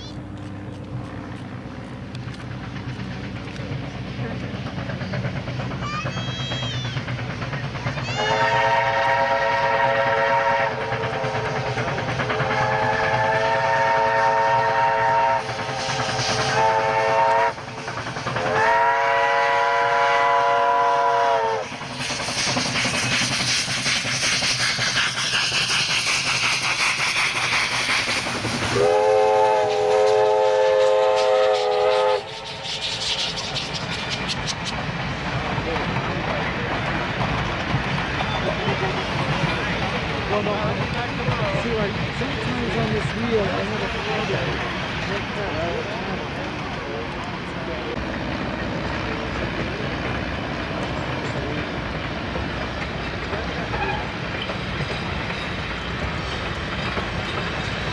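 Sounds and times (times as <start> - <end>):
coaches rolling on rails: 0.0 - 57.9
exhausting steam: 1.9 - 57.9
steam locomotive chime whistle: 8.1 - 11.6, 12.4 - 17.6, 18.5 - 21.7, 28.8 - 33.3
running-gear noise: 31.5 - 46.5.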